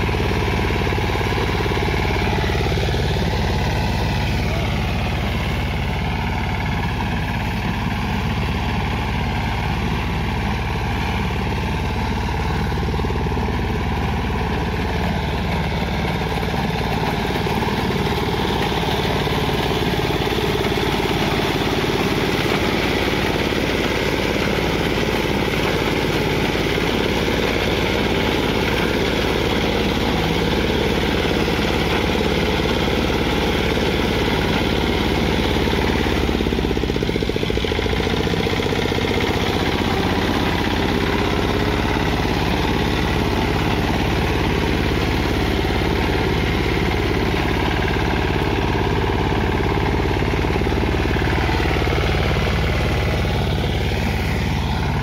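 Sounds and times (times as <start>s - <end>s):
engine running under load: 0.0s - 55.0s.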